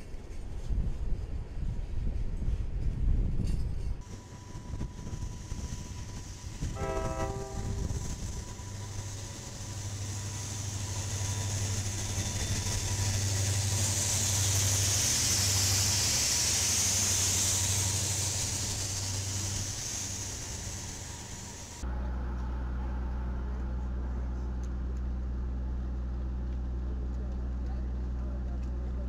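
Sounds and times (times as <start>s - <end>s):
locomotive hiss: 4.0s - 21.8s
locomotive engine drone: 4.0s - 29.0s.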